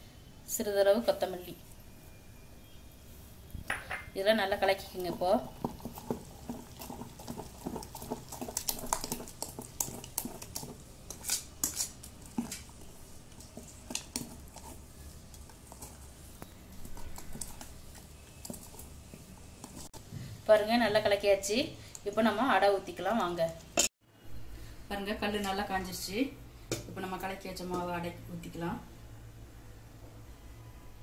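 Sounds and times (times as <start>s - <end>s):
wet batter squishing: 4.6s - 20.0s
spoon scraping steel bowl: 5.1s - 19.9s.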